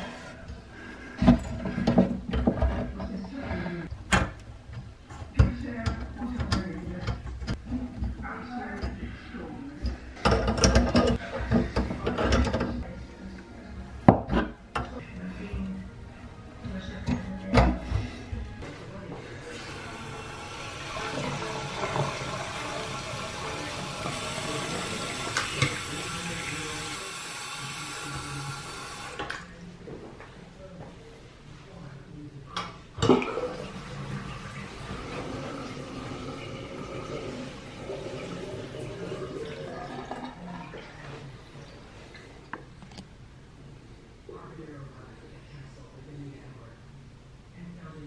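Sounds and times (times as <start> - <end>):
faucet water splashing in sink: 19.5 - 29.2.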